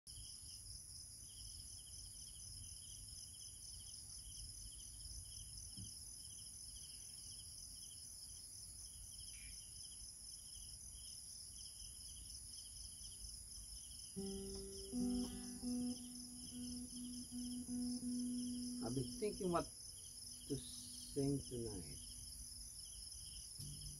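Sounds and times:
crickets chirping: 0.1 - 23.9
night insects trilling: 1.3 - 23.9
acoustic guitar notes: 14.2 - 22.3, 23.6 - 23.9.

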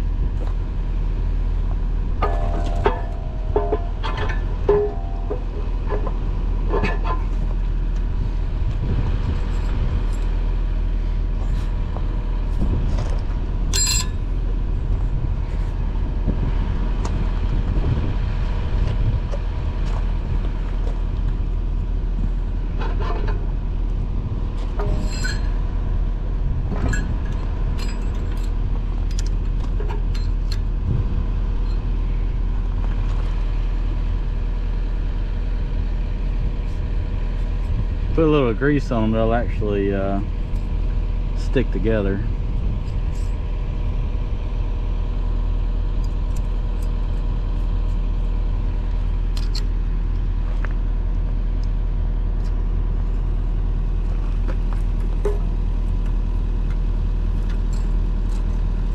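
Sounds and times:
diesel engine idling: 0.0 - 58.9
sharp metal clinks: 13.7 - 14.2.

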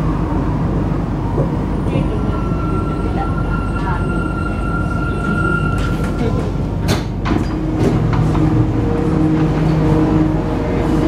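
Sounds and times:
train high whine: 0.0 - 11.0.

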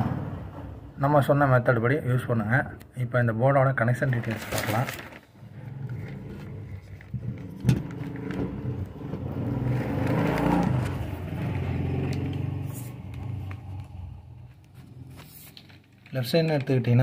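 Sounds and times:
vehicle engine passing by: 0.0 - 0.7, 7.2 - 15.6.

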